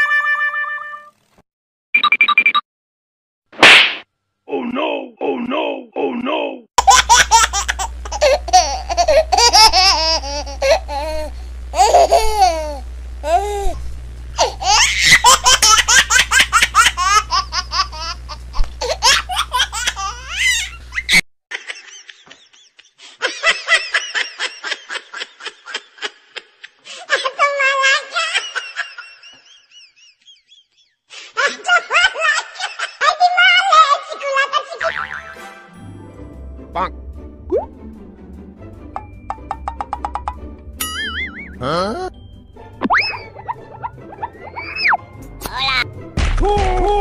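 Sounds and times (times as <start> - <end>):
baby laughing: 6.8 - 13.8, 14.4 - 21.1, 27.1 - 29.1, 42.9 - 45.8
low hum: 7.0 - 18.9
people laughing: 21.5 - 26.7, 31.4 - 33.2, 43.1 - 44.5.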